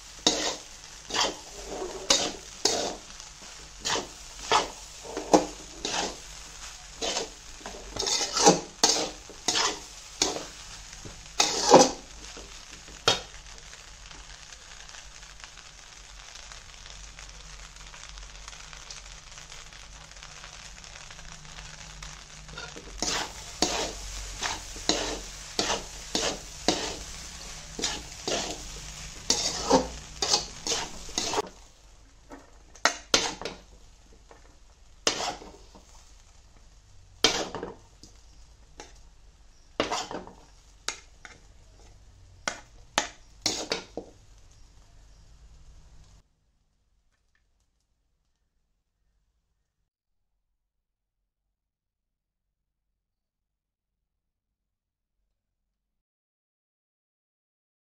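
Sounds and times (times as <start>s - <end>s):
food sizzling: 0.0s - 46.3s
spatula scraping metal pan: 0.2s - 10.6s, 11.3s - 12.4s, 22.5s - 31.5s, 32.3s - 33.6s, 35.0s - 35.8s, 37.2s - 37.8s, 39.8s - 41.9s, 42.5s - 44.0s.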